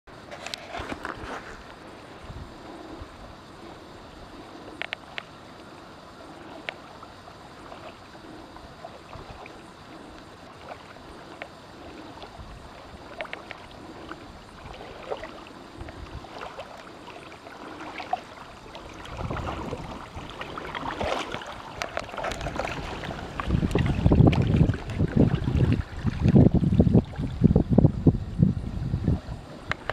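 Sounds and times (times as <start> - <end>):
wind rumbling on microphone: 0.1 - 6.6, 7.6 - 17.0, 17.6 - 29.9
water lapping: 0.2 - 28.4
paddle drips and splashes: 3.6 - 27.6
small ticks and knocks: 4.7 - 5.7, 13.1 - 13.7.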